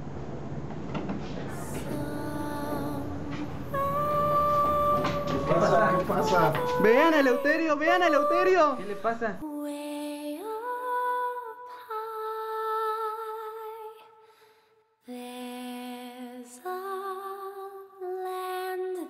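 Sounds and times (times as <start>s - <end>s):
person humming a lullaby: 1.6s - 9.1s.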